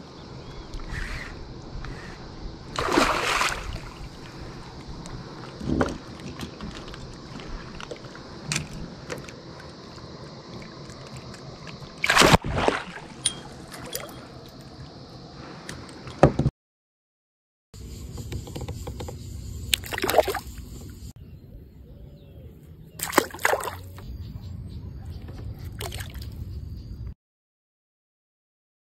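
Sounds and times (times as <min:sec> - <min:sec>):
water lapping: 0:02.7 - 0:08.3
fish thrashing and splashing: 0:02.8 - 0:04.2, 0:10.6 - 0:13.2, 0:23.0 - 0:23.9.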